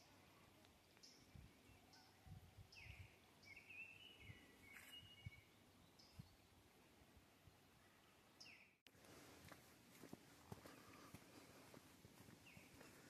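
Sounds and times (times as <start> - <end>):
bird chirping: 0.9 - 6.6, 7.9 - 8.8.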